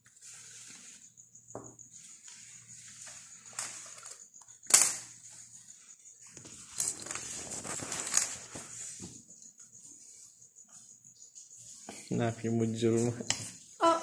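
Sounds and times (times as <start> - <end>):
paper rustling: 0.1 - 1.1, 5.2 - 9.3.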